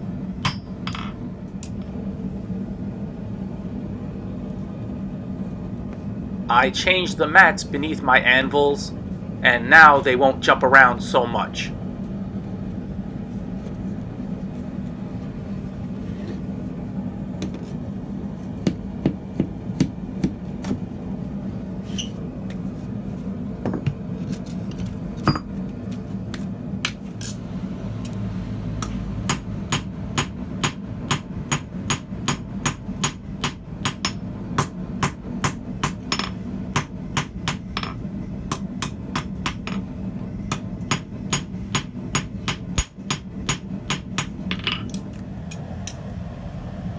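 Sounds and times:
hammer striking steel on anvil: 0.0s - 1.3s, 29.3s - 39.8s, 40.5s - 45.0s
low hum: 0.0s - 46.9s.

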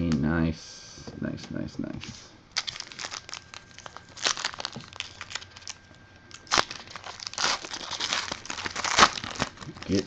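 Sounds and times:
plastic packaging crinkling: 2.6s - 10.0s.

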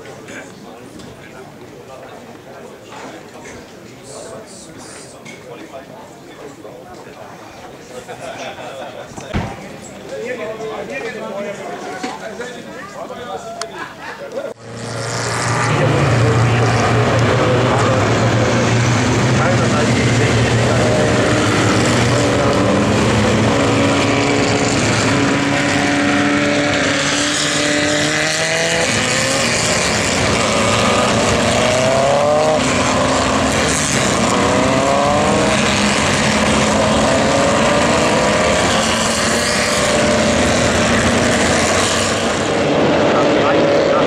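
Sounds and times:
racing car engines accelerating: 14.5s - 44.0s.

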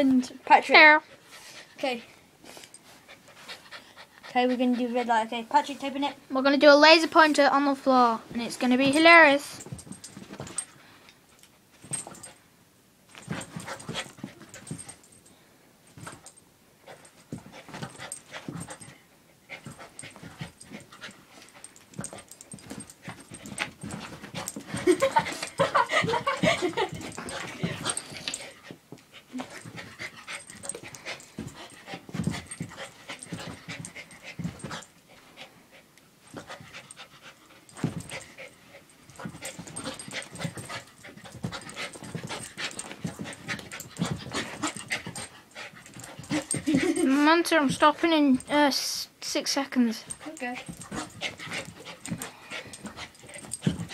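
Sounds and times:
dog panting: 1.0s - 6.2s, 13.2s - 15.2s, 16.2s - 48.5s, 49.9s - 53.9s
dog paws scrabbling on carpet: 6.8s - 10.8s, 11.7s - 12.4s, 13.1s - 15.2s, 15.9s - 35.5s, 36.2s - 48.7s, 49.8s - 53.9s.

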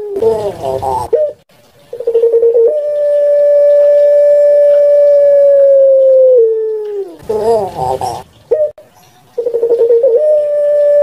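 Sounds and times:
dove cooing: 0.0s - 1.4s, 2.0s - 8.8s, 9.4s - 11.0s.

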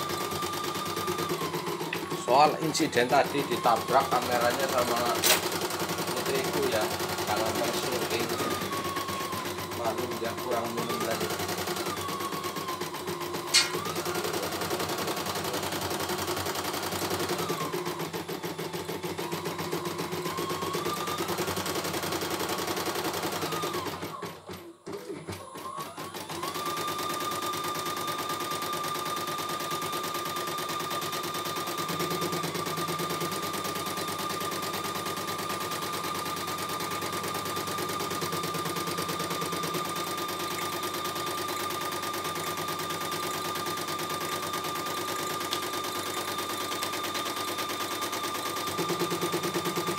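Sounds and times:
embroidery machine needle chatter: 0.3s - 12.2s, 26.4s - 49.9s
motor whine: 6.2s - 14.2s.

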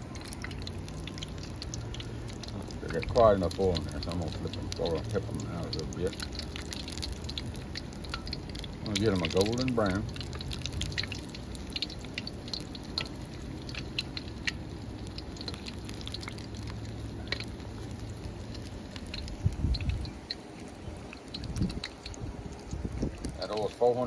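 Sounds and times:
food deep-frying in hot oil: 0.0s - 24.0s
dull low thumps: 19.2s - 20.2s.

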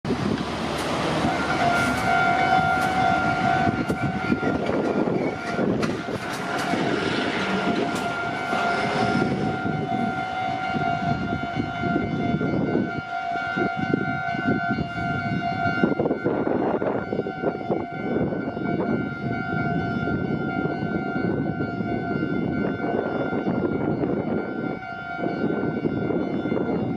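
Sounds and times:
train wheels rumbling: 0.1s - 26.9s.

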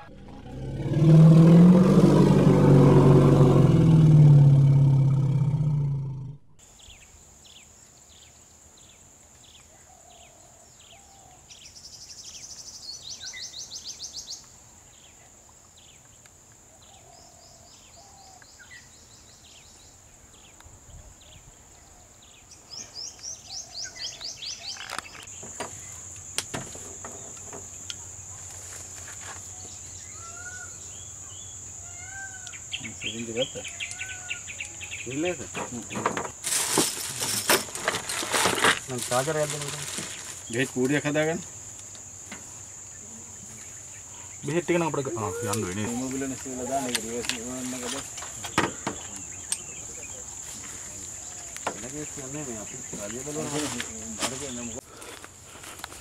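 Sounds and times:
low wavering roar-like animal call: 0.0s - 6.6s
birds chirping: 0.0s - 15.2s, 16.8s - 28.5s, 29.5s - 36.4s, 39.2s - 54.8s
high insect drone: 22.2s - 56.0s.

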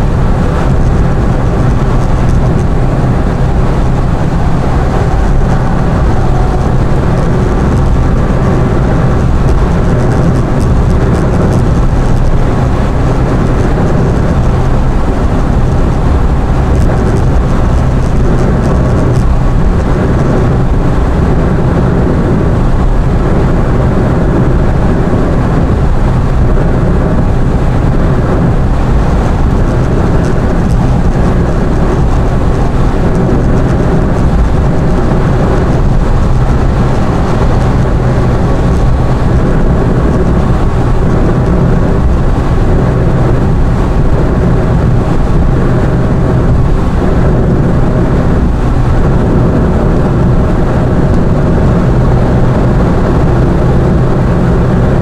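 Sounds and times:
car engine and road rumble: 0.0s - 55.0s.

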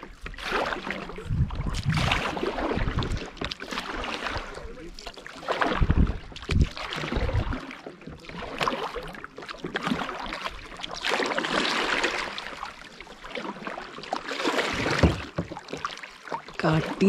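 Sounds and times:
paddles splashing in water: 0.0s - 17.0s.

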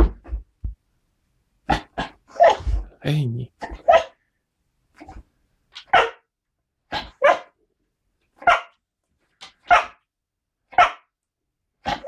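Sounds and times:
dog barking: 3.7s - 4.2s, 5.8s - 6.2s, 6.9s - 7.6s, 8.4s - 8.8s, 9.6s - 10.0s, 10.7s - 11.1s.

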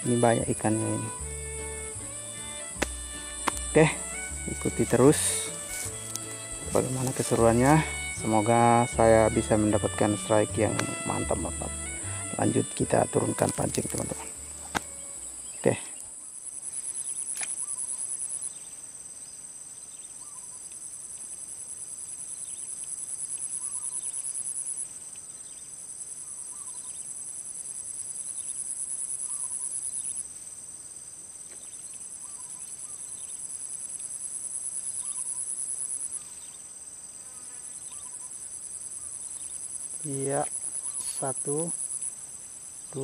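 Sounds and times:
faint short calls: 0.0s - 16.0s
high-pitched pulsing insect song: 0.0s - 43.0s.

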